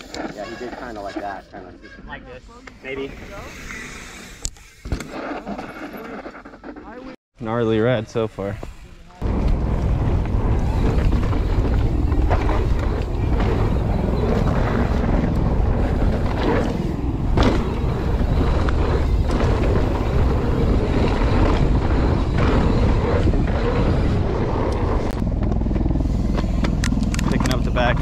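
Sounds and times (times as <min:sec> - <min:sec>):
wind buffeting microphone: 0:09.2 - 0:28.0
bike knocks and rattles: 0:09.3 - 0:23.7.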